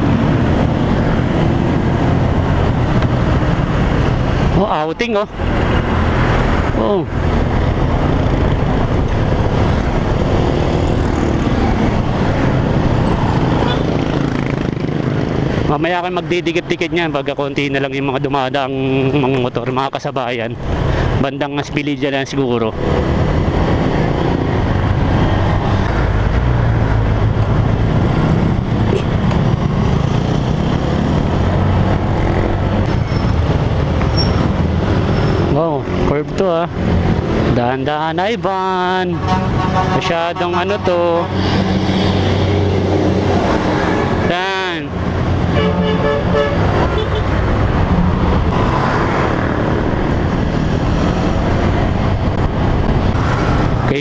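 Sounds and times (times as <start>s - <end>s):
wind rushing over microphone: 0.0s - 15.8s, 22.7s - 39.8s, 46.5s - 54.0s.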